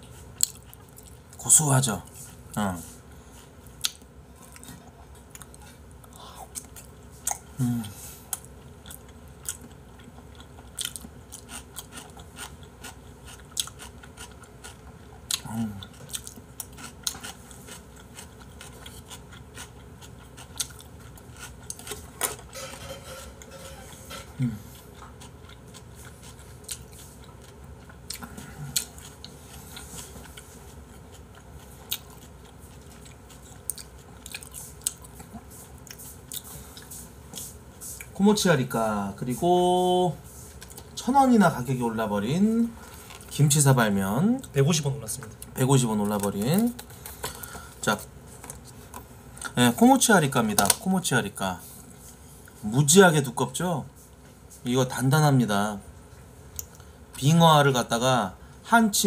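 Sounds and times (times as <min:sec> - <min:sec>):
person chewing wetly: 0:00.3 - 0:01.4, 0:03.6 - 0:07.6, 0:08.3 - 0:22.2, 0:24.6 - 0:38.2, 0:40.5 - 0:41.0
person's voice: 0:38.2 - 0:40.2.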